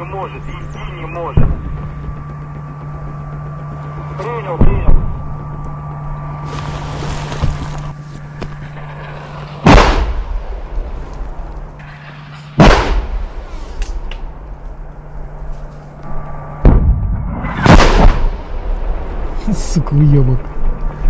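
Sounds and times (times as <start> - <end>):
steady low hum: 0.0 - 21.0
mortar rounds exploding: 9.0 - 10.6, 12.6 - 13.3, 16.6 - 18.5.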